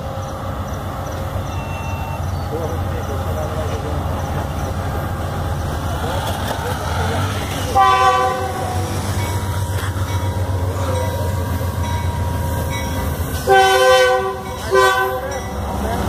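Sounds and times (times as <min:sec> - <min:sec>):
locomotive low rumble: 0:00.0 - 0:16.0
locomotive air horn: 0:07.7 - 0:08.9, 0:13.4 - 0:15.3.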